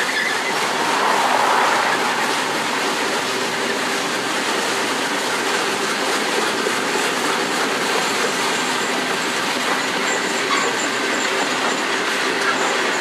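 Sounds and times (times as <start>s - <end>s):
steel wheels running on rails: 0.0s - 13.0s.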